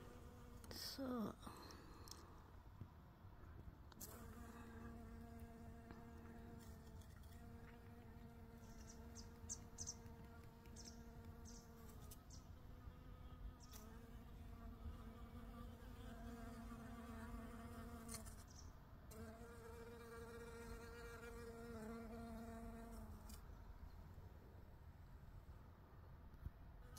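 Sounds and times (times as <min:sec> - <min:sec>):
honeybee buzzing: 0:04.0 - 0:18.5, 0:19.1 - 0:23.4.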